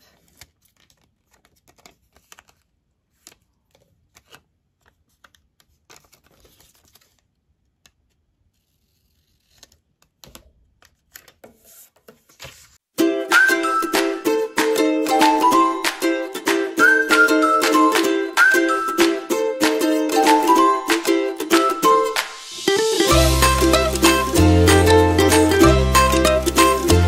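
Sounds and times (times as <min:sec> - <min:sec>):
paper rustling: 0:00.0 - 0:12.8
background music: 0:13.0 - 0:27.0.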